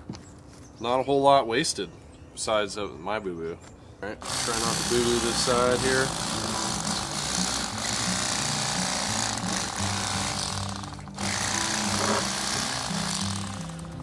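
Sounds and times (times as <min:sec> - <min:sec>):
electric fillet knife buzzing: 0:04.2 - 0:14.0.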